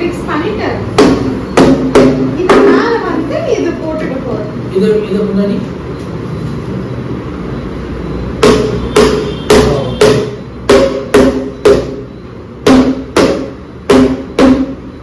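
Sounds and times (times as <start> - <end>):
hammer strikes: 0.9 - 3.0, 8.4 - 15.0.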